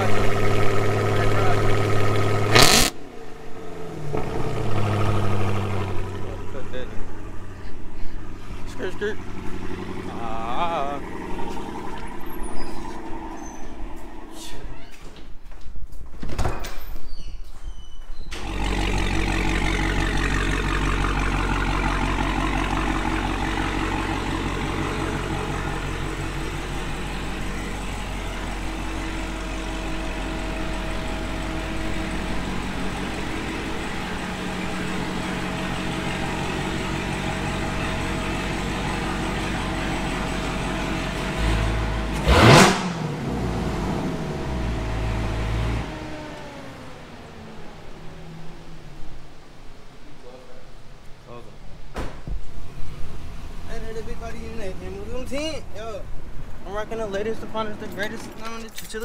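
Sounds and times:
car engine running at low speed: 0.0 - 14.6, 18.4 - 49.5
engine rev: 0.0 - 14.6, 18.3 - 48.0.

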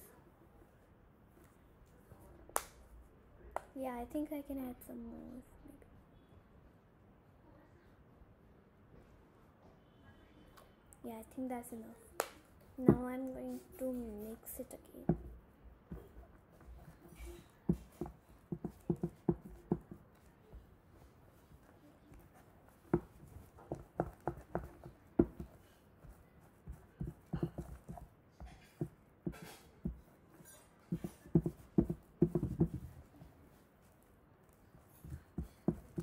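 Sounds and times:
spoon knocking plastic tub: 17.2 - 20.0, 22.9 - 30.1, 30.9 - 33.0, 35.0 - 36.0.

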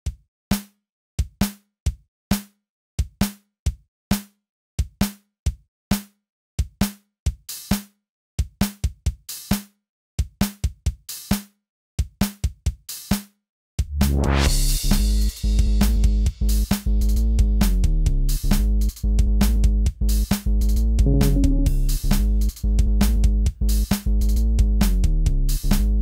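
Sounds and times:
drum machine beat: 21.0 - 22.1.

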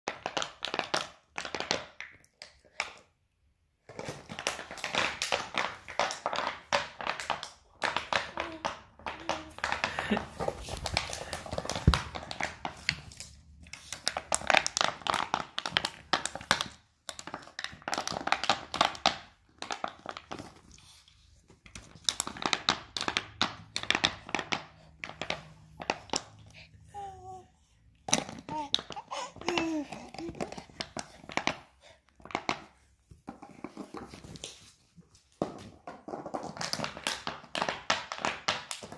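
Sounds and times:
dog chewing plastic bottle: 3.8 - 21.0, 28.1 - 38.9.

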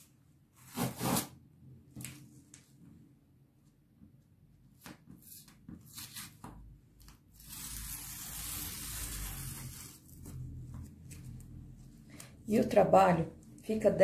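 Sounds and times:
tape ripping off fabric: 0.6 - 1.4, 7.3 - 10.3.

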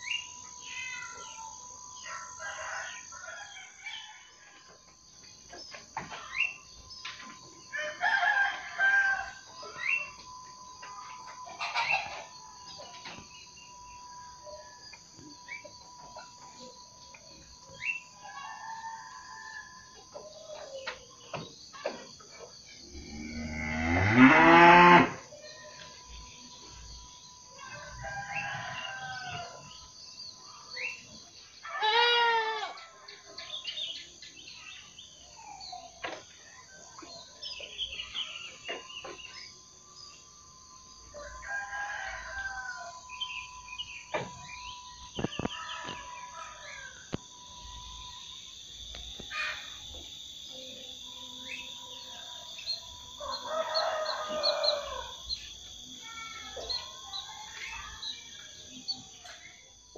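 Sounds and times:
roosters crowing: 0.1 - 4.8, 7.6 - 21.3, 22.8 - 30.0, 40.0 - 59.2
small birds chirping: 4.9 - 7.9, 8.7 - 19.5, 32.6 - 40.6, 43.1 - 59.9
steady high-pitched hum: 5.0 - 18.4, 42.1 - 59.9.

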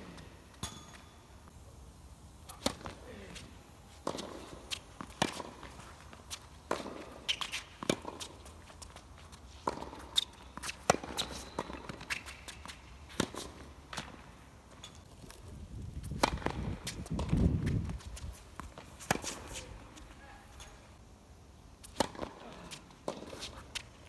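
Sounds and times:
tennis ball struck by rackets: 2.4 - 3.0, 4.0 - 5.8, 6.6 - 8.4, 9.6 - 14.2, 16.0 - 17.8, 21.8 - 22.4
footsteps on hard court: 2.8 - 20.2.

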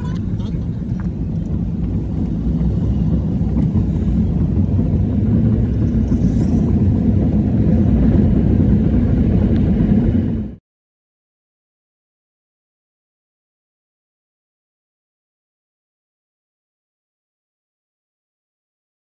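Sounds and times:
car interior road rumble: 0.0 - 10.6.

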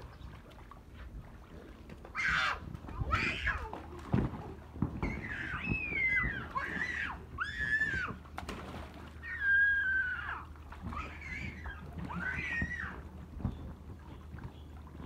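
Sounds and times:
water splashing in a pool: 0.0 - 15.0
children squealing and crying: 2.1 - 3.9, 4.9 - 8.2, 9.2 - 13.1.

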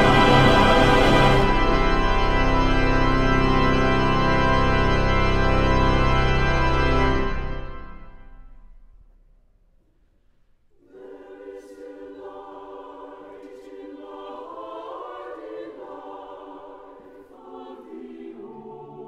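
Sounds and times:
mixed choir singing chords: 0.0 - 2.1, 10.8 - 19.0.

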